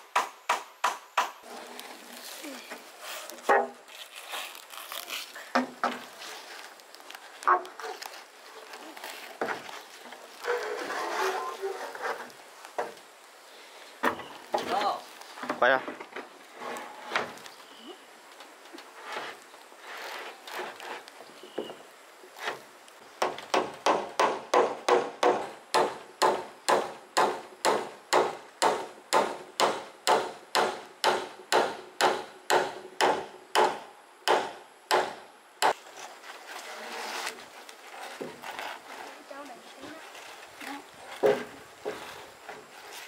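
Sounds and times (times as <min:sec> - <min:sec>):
tool striking wood: 0:00.1 - 0:01.4, 0:23.2 - 0:35.8.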